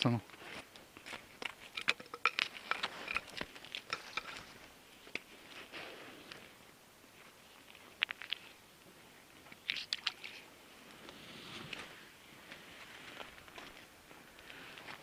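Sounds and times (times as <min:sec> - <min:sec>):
handling crunches and clicks: 0:00.7 - 0:05.6.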